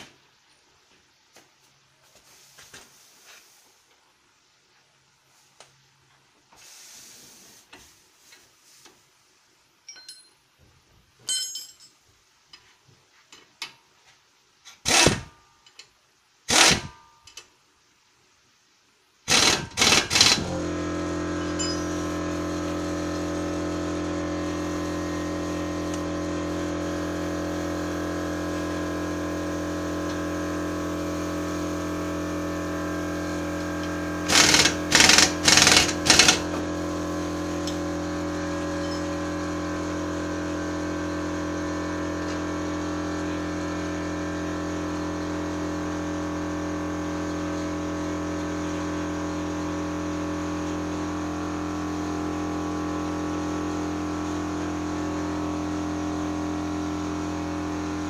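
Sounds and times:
pneumatic impact wrench rattling: 14.7 - 15.4, 16.5 - 17.0, 19.3 - 27.0, 28.0 - 41.2
steady machine hum: 19.3 - 58.0.

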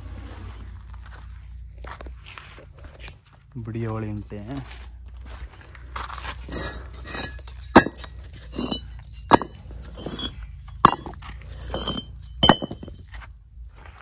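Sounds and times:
bricks scraping: 6.4 - 13.1
bricks clinking: 6.5 - 13.1.

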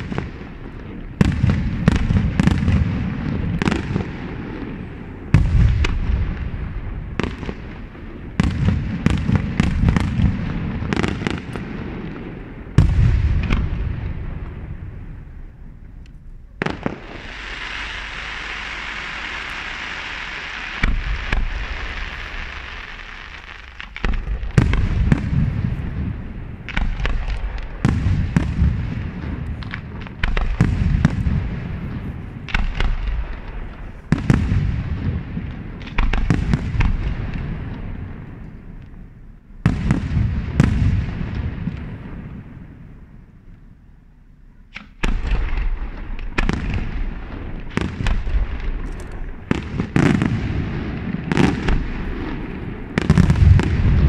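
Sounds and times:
firework bang: 0.0 - 15.3, 16.6 - 38.4, 39.6 - 42.8, 44.7 - 54.0
firework shells booming: 0.0 - 43.3, 44.7 - 54.0
firework hiss: 16.6 - 25.9.

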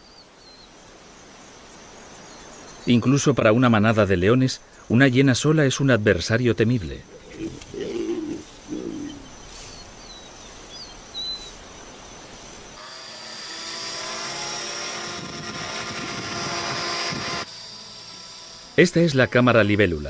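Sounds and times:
short low calls: 6.8 - 9.4
bird chirps: 7.0 - 12.2
model helicopter motor whine: 12.8 - 20.0.

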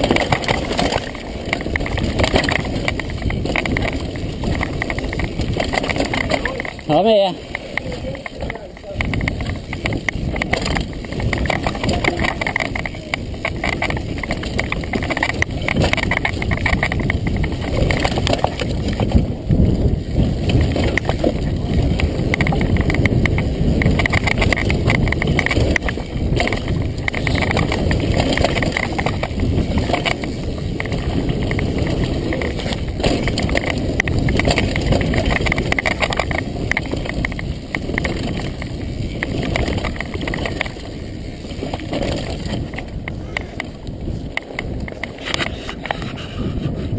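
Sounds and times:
bike rattling over bumps: 0.0 - 46.9
bike tyres rumbling on dirt: 0.0 - 46.9.

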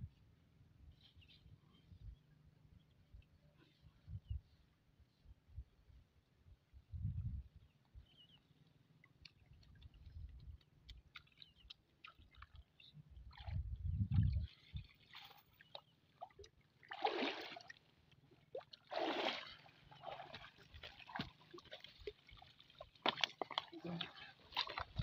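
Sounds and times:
water sloshing and dripping: 9.0 - 25.0
water splashes: 10.8 - 25.0.

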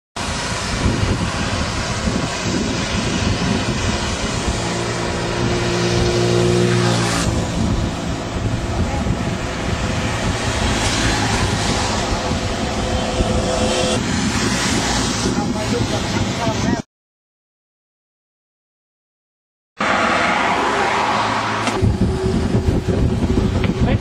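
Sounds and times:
bicycle on wet road: 0.2 - 16.4
motor vehicle engine hum: 0.2 - 16.8, 19.8 - 24.0
road and traffic noise: 0.2 - 16.9, 19.8 - 24.0.

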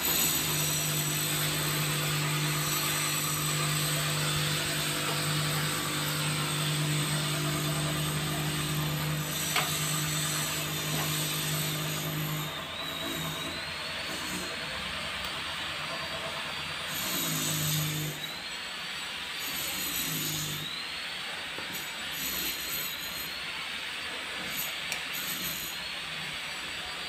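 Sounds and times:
machine humming: 0.0 - 18.6.

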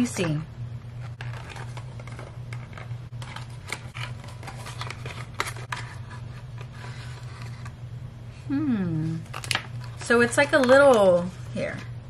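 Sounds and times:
cardboard scraping and rustling: 1.0 - 7.7.

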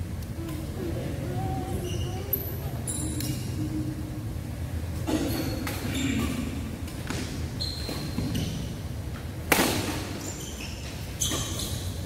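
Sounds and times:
shoes squeaking on court: 1.7 - 3.5, 5.1 - 8.8, 9.9 - 12.0
racket hitting shuttlecock: 9.5 - 10.2.

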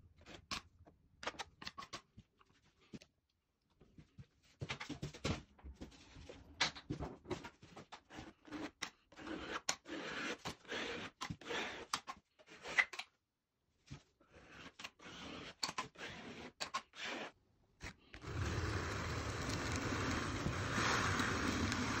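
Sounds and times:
metal spatula scraping plaster: 7.6 - 13.1, 13.8 - 18.3.

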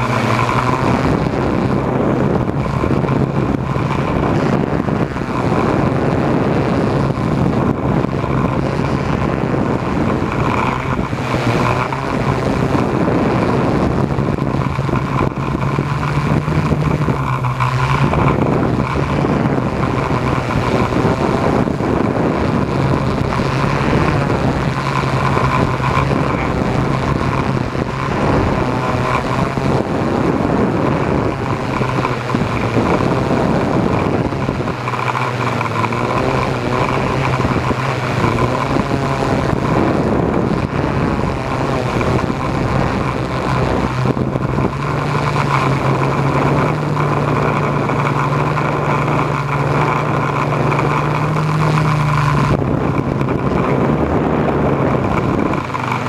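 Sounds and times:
drone propellers buzzing: 0.0 - 56.0.

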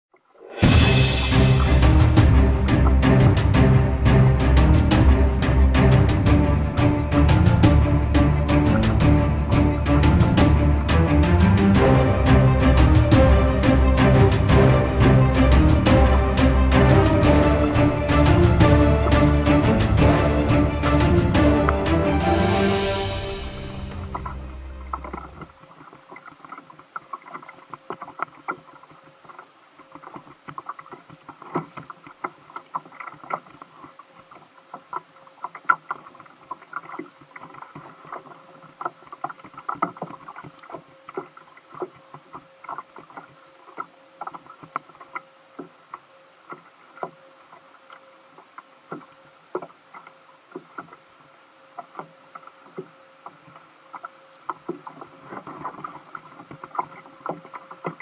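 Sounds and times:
faint steady hum: 6.4 - 58.0
waves slapping kayak hull: 8.8 - 58.0.

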